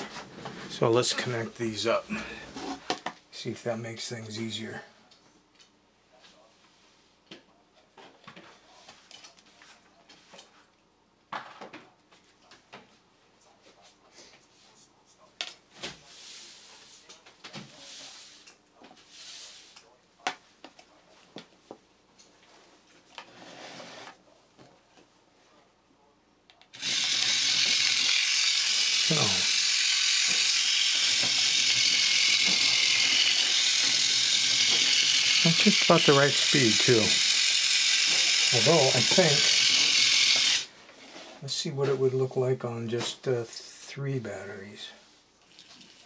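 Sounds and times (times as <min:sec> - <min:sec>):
gearmotor whirring: 0:26.8 - 0:40.7.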